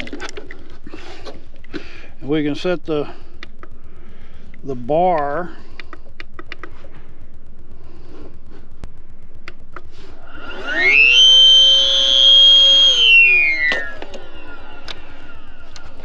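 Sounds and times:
air inflator motor whining: 9.9 - 16.0.

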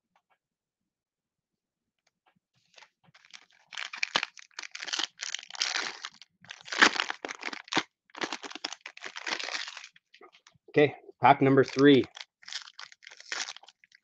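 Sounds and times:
foil wrapper crinkling and tearing: 2.8 - 10.1, 11.6 - 14.0.

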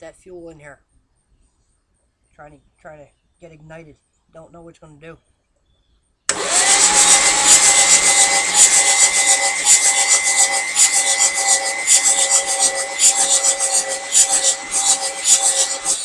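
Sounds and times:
starter motor cranking engine: 6.3 - 16.0.

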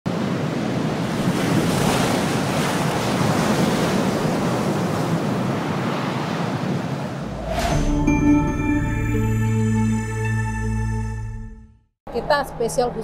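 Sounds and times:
wind: 0.1 - 8.2
ocean surf: 0.1 - 8.6.

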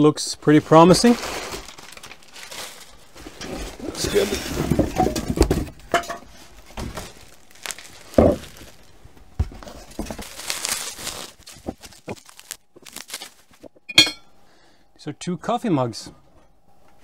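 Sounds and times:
plastic and bubble wrap crinkling: 0.4 - 5.6, 6.3 - 13.8.

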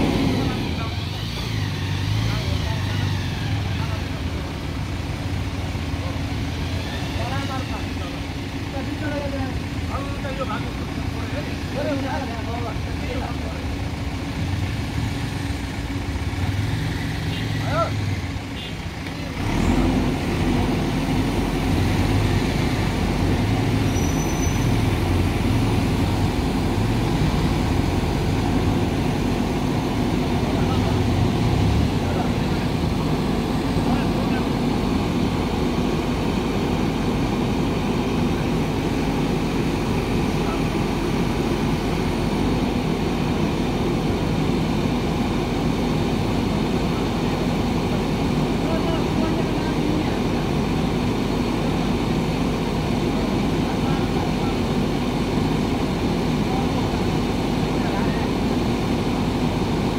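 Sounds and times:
diesel engine under hydraulic load: 0.0 - 59.9.

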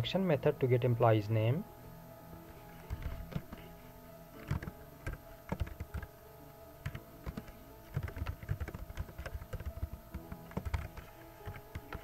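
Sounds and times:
faint steady hum: 0.0 - 12.0
computer keyboard typing: 2.8 - 3.7, 4.4 - 6.1, 6.8 - 12.0.

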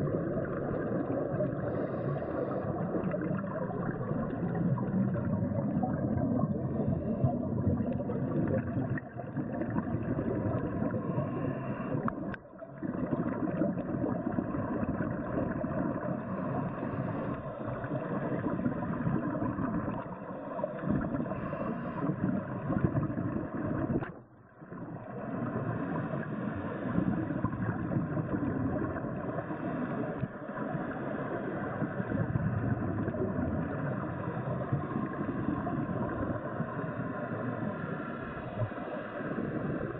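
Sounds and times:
underwater rushing and gurgling: 0.0 - 39.9.

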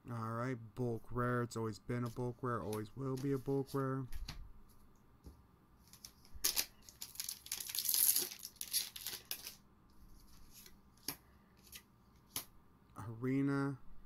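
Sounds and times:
foil pack tearing: 6.4 - 9.6.

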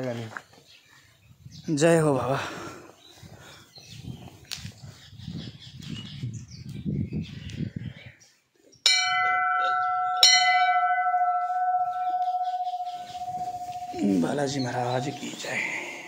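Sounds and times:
temple bell ringing: 8.9 - 16.0.

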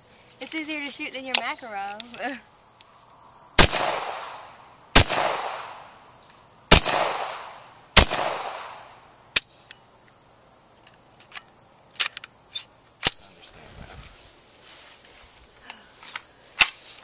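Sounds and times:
pistol shots echoing: 3.6 - 5.9, 6.7 - 8.9.

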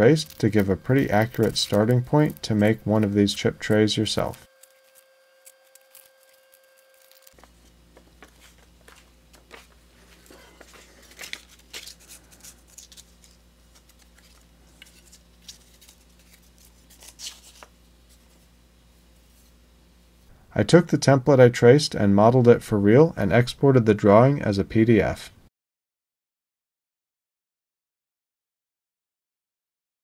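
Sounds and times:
paper rustling and crinkling: 0.0 - 18.5
faint low hum: 0.0 - 25.4.

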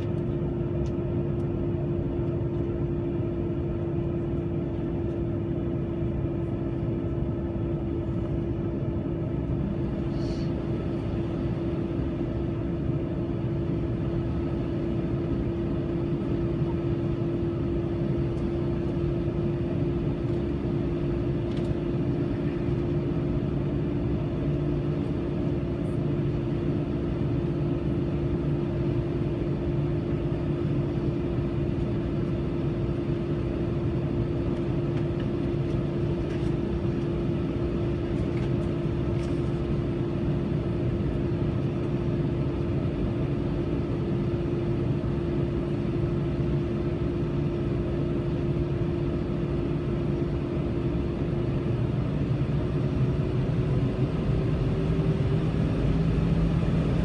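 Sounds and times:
low cabin rumble: 0.0 - 57.0.

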